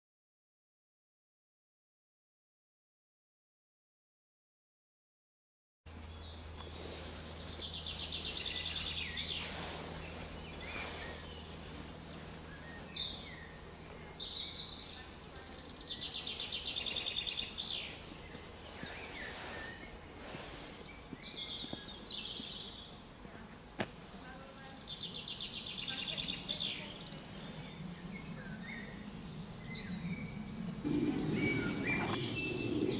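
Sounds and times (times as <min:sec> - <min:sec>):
low steady hum: 0:05.9 - 0:32.9
songbirds singing: 0:05.9 - 0:32.9
bird fast trill: 0:30.3 - 0:32.9.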